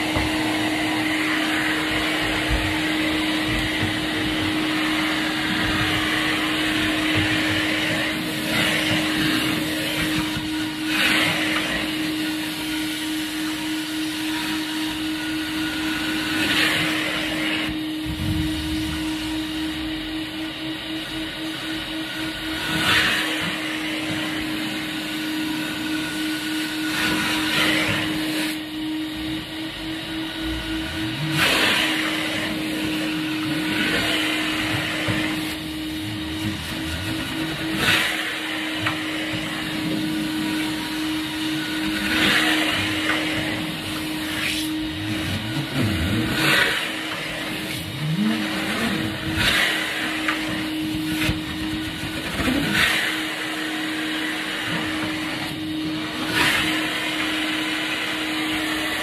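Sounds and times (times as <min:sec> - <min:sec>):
vacuum suction rushing: 0:00.0 - 0:59.0
motor hum: 0:16.4 - 0:25.9, 0:29.0 - 0:53.6.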